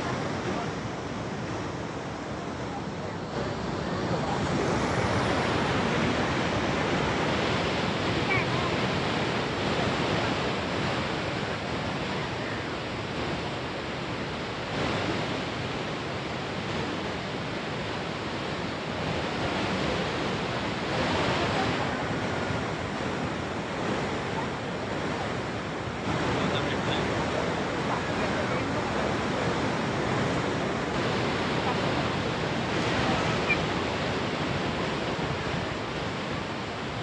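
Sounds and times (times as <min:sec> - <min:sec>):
waterfall roaring: 0:00.0 - 0:37.0.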